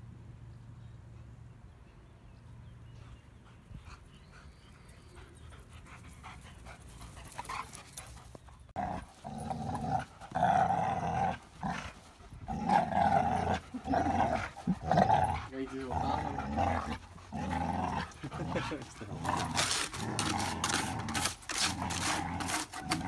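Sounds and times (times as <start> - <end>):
dogs play-growling: 5.5 - 23.0.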